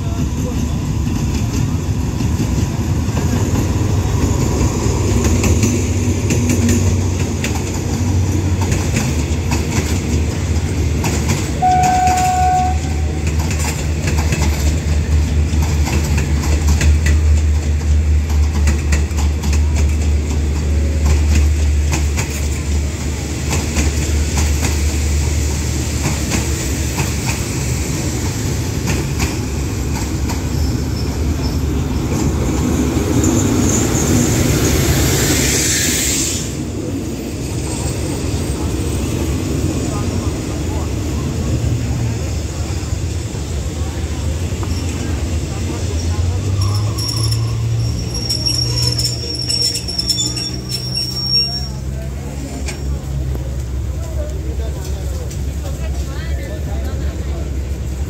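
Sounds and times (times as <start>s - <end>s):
locomotive engine rumble: 0.0s - 58.0s
wheels clacking over rail joints: 0.1s - 34.9s
train horn toot: 11.6s - 13.3s.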